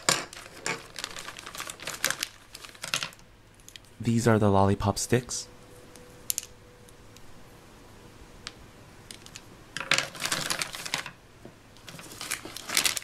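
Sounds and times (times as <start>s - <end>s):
plastic toy pieces clattering: 0.0s - 3.8s, 9.1s - 11.2s, 11.8s - 13.0s.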